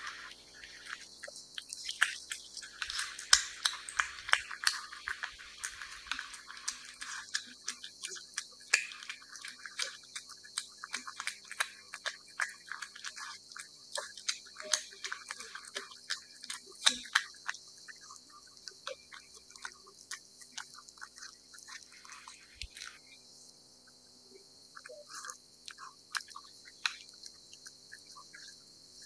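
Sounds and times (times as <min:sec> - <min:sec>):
cat chewing and licking: 0:00.0 - 0:23.2, 0:24.7 - 0:29.0.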